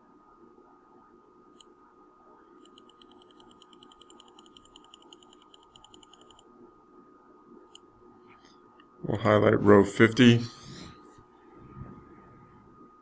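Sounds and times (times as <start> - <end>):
low room hum: 0.0 - 13.0
mouse scroll wheel ticking: 2.6 - 6.4
computer mouse click: 2.6 - 6.5.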